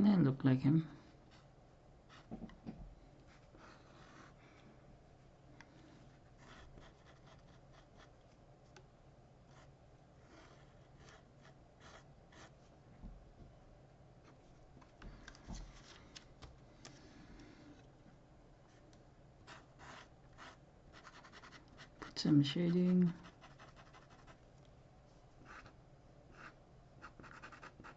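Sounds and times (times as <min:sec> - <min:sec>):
marker scratching on paper: 0:06.4 - 0:08.1, 0:10.3 - 0:12.6, 0:19.5 - 0:22.2, 0:23.0 - 0:24.4, 0:26.3 - 0:27.9.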